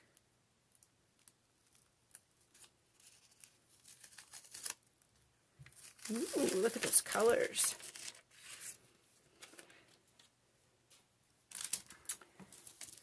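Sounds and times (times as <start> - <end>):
tape peeling off fabric: 1.2 - 4.9.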